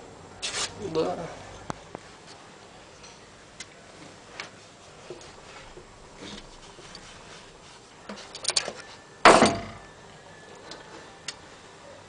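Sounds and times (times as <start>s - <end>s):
metal tool parts clicking: 8.3s - 8.7s
loud ringing metal clank: 9.2s - 9.9s.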